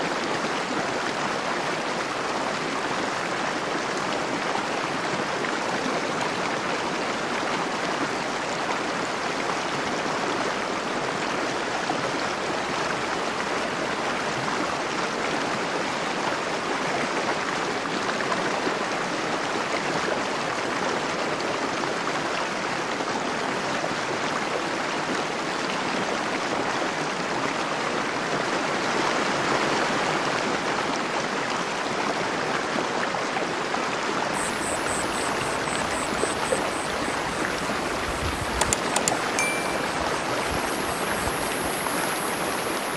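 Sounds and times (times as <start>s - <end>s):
river water flowing: 30.2s - 42.9s.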